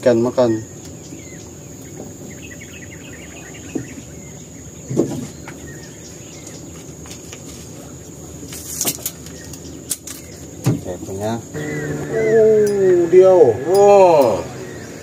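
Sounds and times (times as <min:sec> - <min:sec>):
birds chirping faintly: 0:00.0 - 0:15.0
knocks and thumps on boat: 0:04.8 - 0:05.6, 0:10.6 - 0:11.0
high-pitched insect drone: 0:09.9 - 0:15.0.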